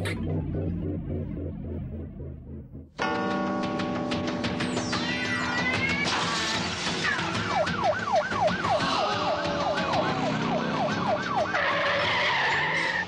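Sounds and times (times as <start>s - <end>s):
steady siren tone: 0.0s - 3.2s, 6.9s - 13.0s
siren yelping: 4.8s - 13.0s.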